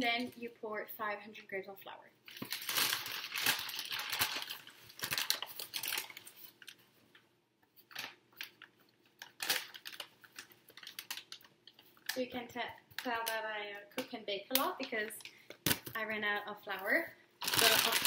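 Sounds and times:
paper bag crinkling: 0:02.3 - 0:06.8, 0:07.8 - 0:13.4, 0:17.4 - 0:18.0.

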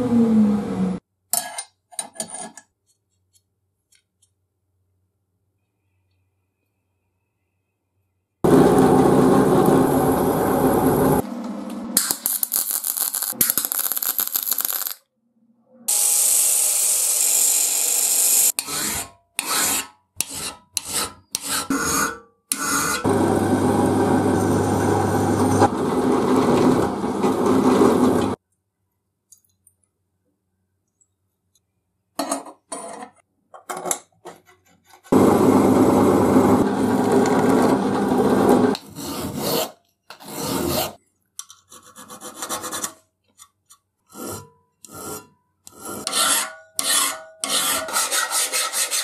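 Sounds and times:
power tool running: 0:08.4 - 0:11.6, 0:23.0 - 0:28.4, 0:35.1 - 0:38.8
hand file rasping on metal: 0:18.6 - 0:23.1, 0:44.1 - 0:49.0.

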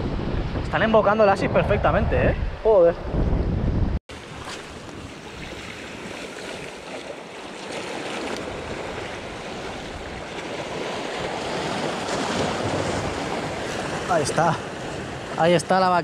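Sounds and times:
faint water splashes: 0:04.1 - 0:15.4
sea water washing on rocks: 0:04.1 - 0:15.6.

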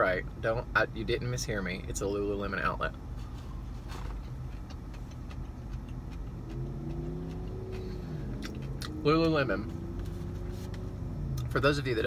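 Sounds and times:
car engine idling: 0:03.6 - 0:12.0
chewing clicks: 0:04.5 - 0:08.9.

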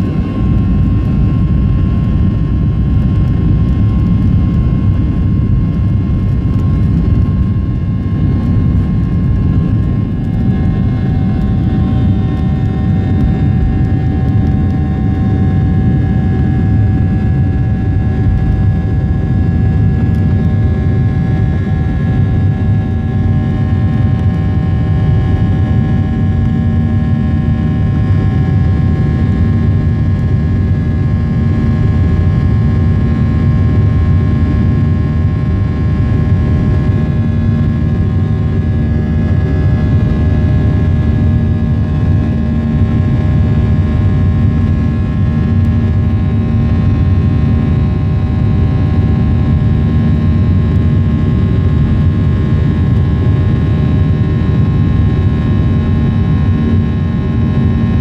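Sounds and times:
steady whining tones: 0:00.0 - 0:33.5
jet engine rumble: 0:00.0 - 0:58.0.

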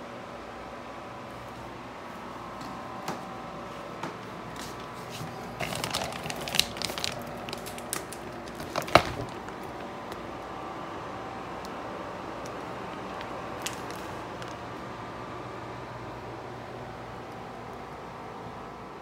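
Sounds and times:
steady low hum: 0:00.0 - 0:19.0
plastic wrap crinkling: 0:05.1 - 0:10.5, 0:12.4 - 0:14.7.

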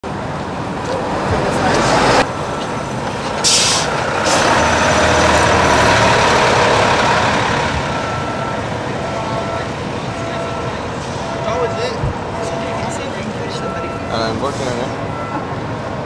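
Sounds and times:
hissing air burst: 0:03.4 - 0:04.4.

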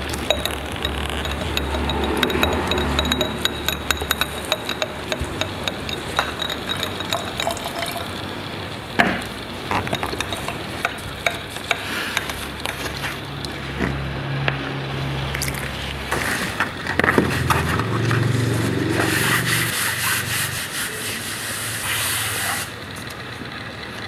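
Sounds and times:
paintbrush tapping jar: 0:00.0 - 0:08.2, 0:09.7 - 0:13.2.

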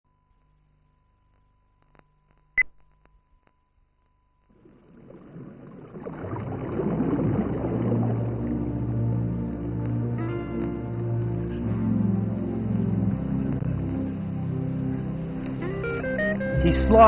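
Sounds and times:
ambient music: 0:05.9 - 0:17.0.

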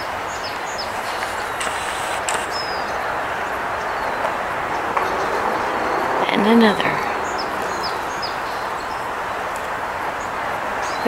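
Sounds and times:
rushing outdoor background noise: 0:00.0 - 0:11.0.

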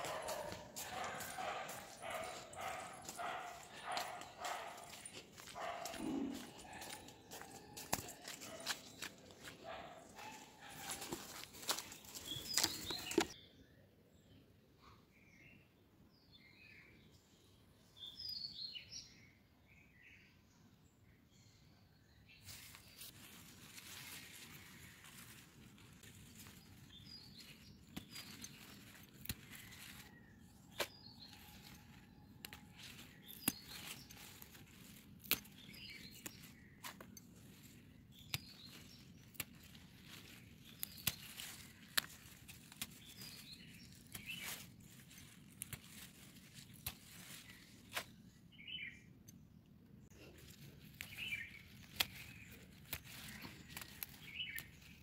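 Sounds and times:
foliage rustling: 0:00.0 - 0:13.4, 0:22.4 - 0:48.3, 0:50.0 - 0:55.0
stems snapping: 0:00.0 - 0:13.4, 0:22.7 - 0:48.2, 0:50.2 - 0:55.0.

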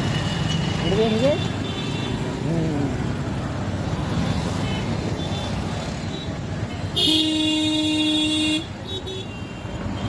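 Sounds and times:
street traffic: 0:00.0 - 0:10.0
vehicle horn: 0:07.0 - 0:10.0.

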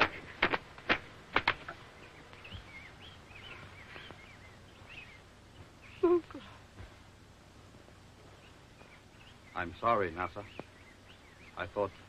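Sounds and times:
faint bird chirps: 0:01.8 - 0:07.0, 0:08.2 - 0:12.0.

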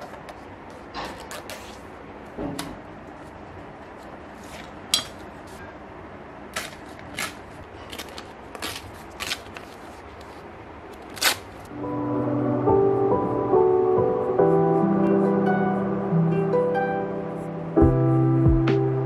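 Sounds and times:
stiff paper rustling and crackling: 0:00.0 - 0:02.0, 0:06.5 - 0:11.7.

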